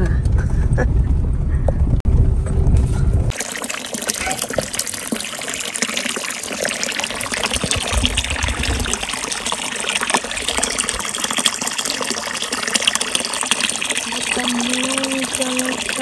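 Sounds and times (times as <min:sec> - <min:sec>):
water pouring into pond: 0:03.3 - 0:16.0.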